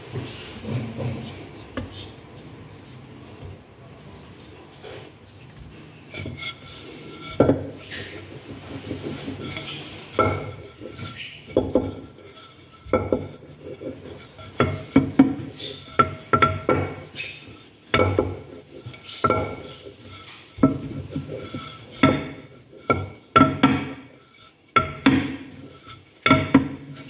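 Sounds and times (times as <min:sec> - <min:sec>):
rolling pin rumbling on dough: 0:04.8 - 0:27.0
rolling pin knocking on counter: 0:11.5 - 0:12.1, 0:12.9 - 0:19.8, 0:20.6 - 0:24.1, 0:24.8 - 0:25.6, 0:26.2 - 0:27.0.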